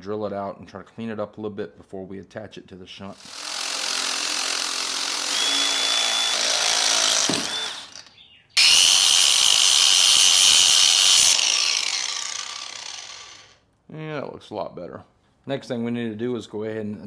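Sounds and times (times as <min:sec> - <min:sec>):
angle grinder whining: 0:03.2 - 0:13.6
cordless drill drilling metal: 0:03.2 - 0:13.6.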